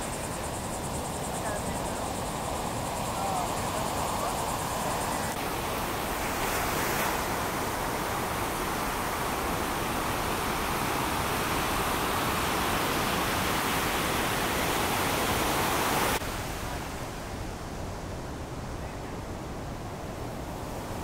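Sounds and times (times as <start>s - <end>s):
heavy ocean surf breaking: 0.0s - 18.4s.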